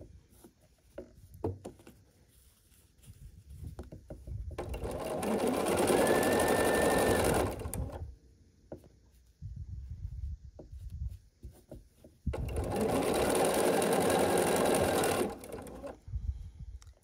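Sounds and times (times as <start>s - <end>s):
sewing machine stitching: 4.6s - 8.0s, 12.3s - 16.0s.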